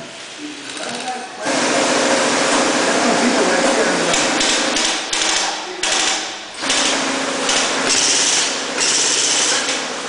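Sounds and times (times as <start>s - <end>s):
airsoft guns firing full-auto: 4.2s - 9.5s.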